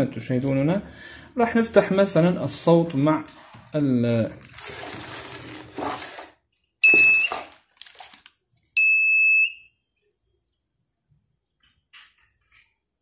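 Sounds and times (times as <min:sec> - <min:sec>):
metal detector beeping: 0:06.8 - 0:07.5, 0:08.8 - 0:09.7.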